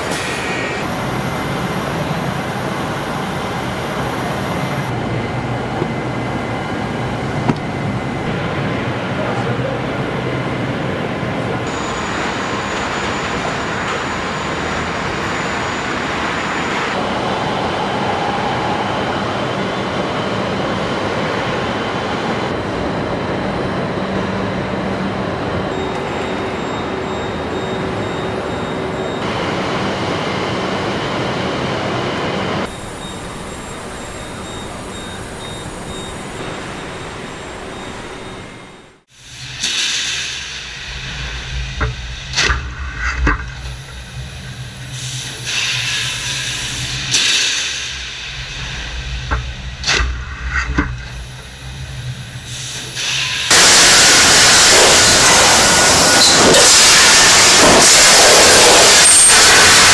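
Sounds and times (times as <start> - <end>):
machinery hum: 0.0 - 59.9
low machine rumble: 40.6 - 47.2
loud steady hiss: 51.2 - 59.9.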